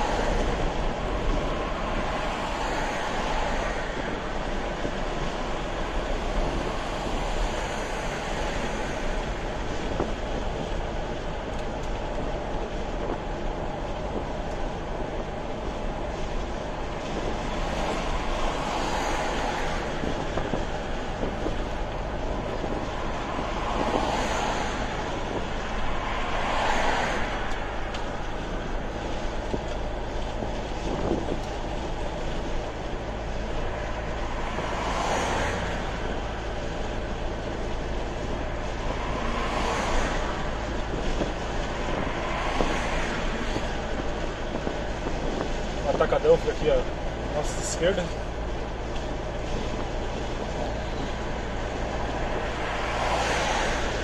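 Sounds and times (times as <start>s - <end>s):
car engine hum: 0.0s - 54.0s
road and tyre noise: 0.0s - 54.0s.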